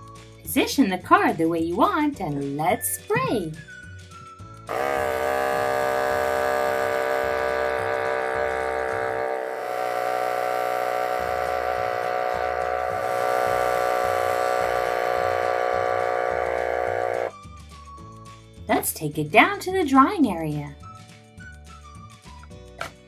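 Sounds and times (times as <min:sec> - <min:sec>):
motorized airbrush whirring: 0:04.7 - 0:17.3.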